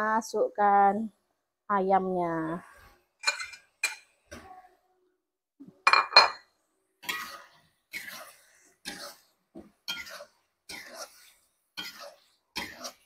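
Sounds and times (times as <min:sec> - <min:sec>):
spatula scraping a wok: 0:07.0 - 0:13.0.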